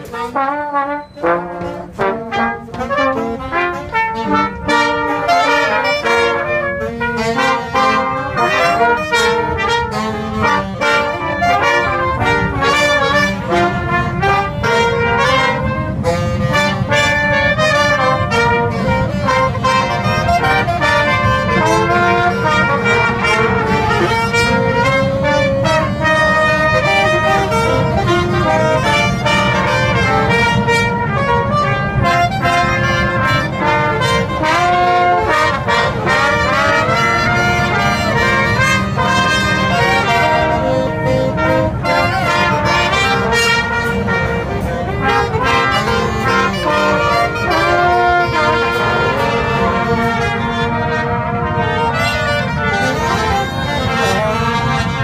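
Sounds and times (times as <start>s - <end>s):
brass band playing upbeat tune: 0.0s - 55.0s.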